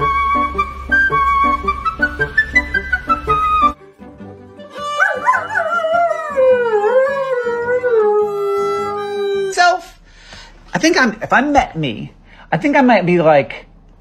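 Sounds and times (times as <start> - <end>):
violin playing: 0.0 - 5.3
dog howling: 4.7 - 9.6.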